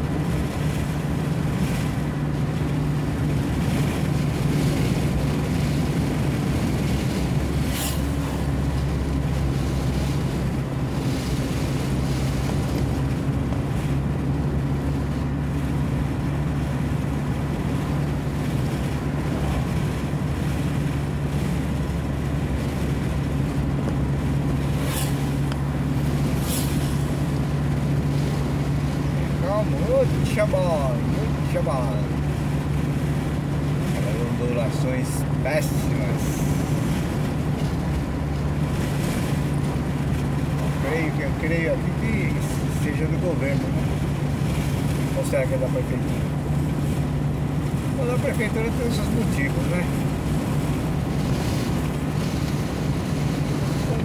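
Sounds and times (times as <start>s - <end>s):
road noise: 0.0s - 54.0s
vehicle engine droning: 0.0s - 54.0s
brief high hisses: 26.4s - 26.9s.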